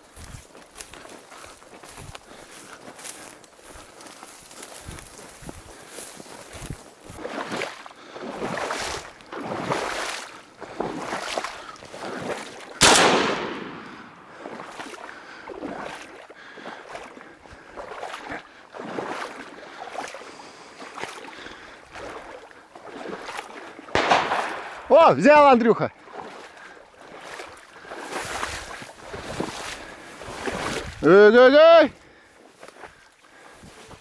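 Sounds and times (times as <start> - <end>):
wading splashes through reeds: 0.0 - 34.0
shotgun shot: 12.8 - 14.2, 24.0 - 25.0.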